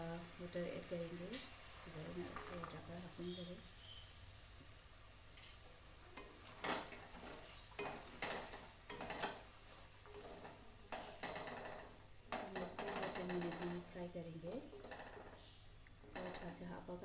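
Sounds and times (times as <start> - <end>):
light sizzle: 0.0 - 17.0
wooden spatula scraping a pan: 5.4 - 17.0.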